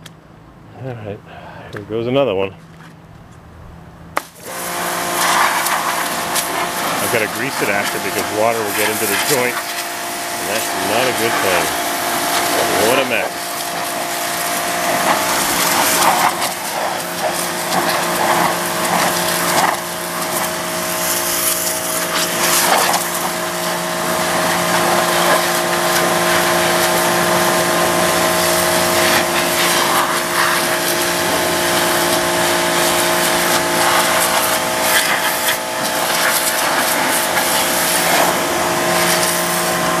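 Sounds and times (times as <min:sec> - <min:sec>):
pressure washer spraying: 0:04.2 - 0:40.0.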